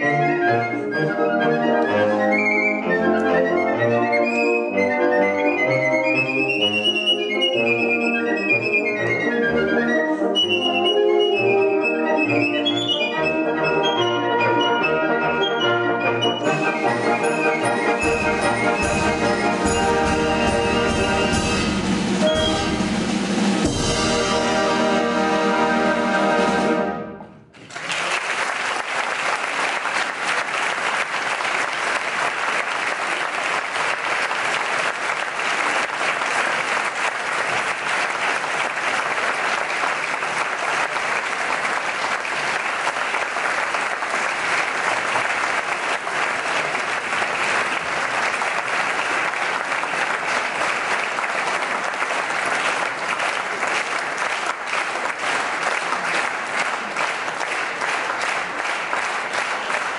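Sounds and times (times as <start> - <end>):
audience applauding: 15.6 - 22.4, 27.5 - 59.9.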